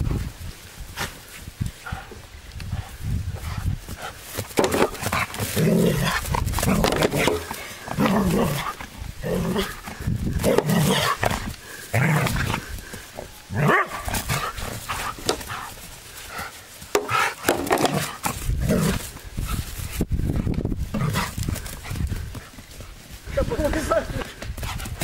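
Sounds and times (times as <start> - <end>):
dog barking: 13.6 - 14.0.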